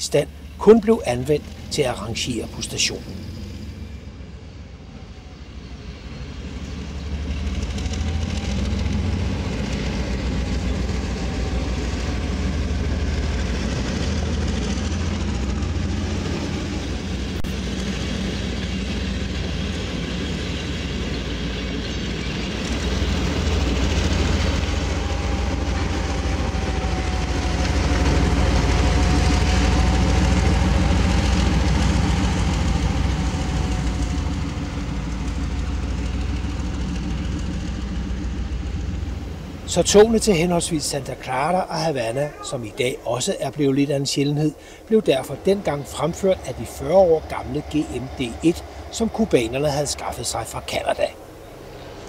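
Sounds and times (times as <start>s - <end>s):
diesel locomotive engine rumble: 0.0s - 52.0s
wheels rolling on rails: 5.9s - 41.6s.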